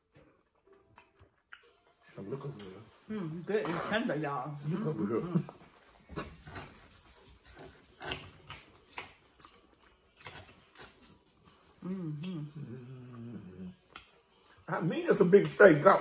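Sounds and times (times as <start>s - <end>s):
chewing: 5.4s - 14.7s
cutlery scraping on plates: 6.1s - 9.2s
person humming mmm: 11.8s - 13.9s.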